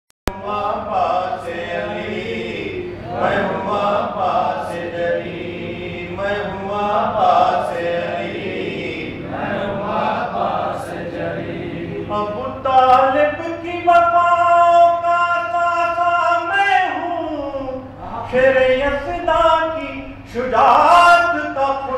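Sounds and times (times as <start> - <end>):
man chanting into a microphone: 0.3 - 5.2, 11.9 - 21.9.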